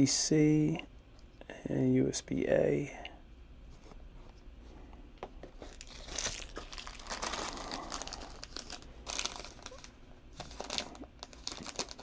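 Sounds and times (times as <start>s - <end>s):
plastic bags crinkling: 5.5s - 12.0s.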